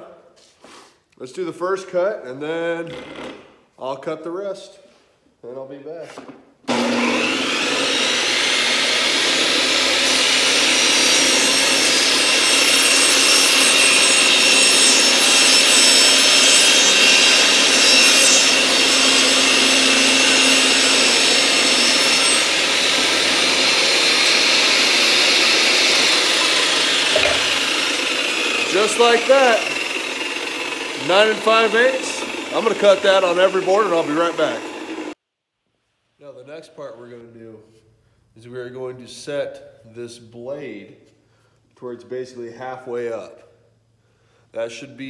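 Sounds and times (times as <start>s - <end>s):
saw ripping wooden board: 6.7s - 35.2s
table saw motor whining: 6.7s - 35.2s.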